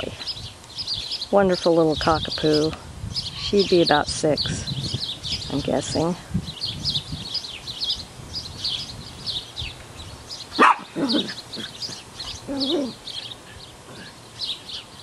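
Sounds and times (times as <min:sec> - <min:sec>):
songbirds chirping: 0:00.0 - 0:15.0
small dogs barking: 0:10.5 - 0:13.0.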